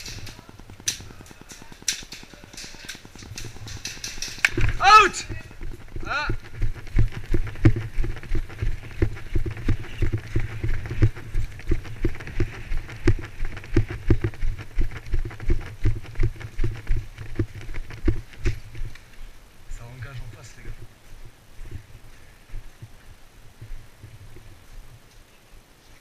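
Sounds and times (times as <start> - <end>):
gear clicking: 0.0 - 19.0
running footsteps on pavement: 0.0 - 25.1.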